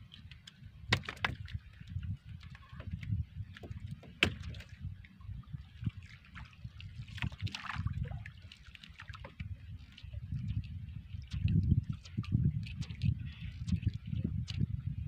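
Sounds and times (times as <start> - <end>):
water sloshing against boat hull: 0.0 - 15.0.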